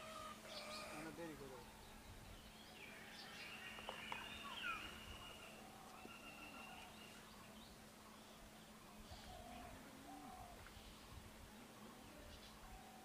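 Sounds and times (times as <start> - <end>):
faint steady low hum: 0.0 - 13.0
faint whistled bird calls: 2.9 - 7.3.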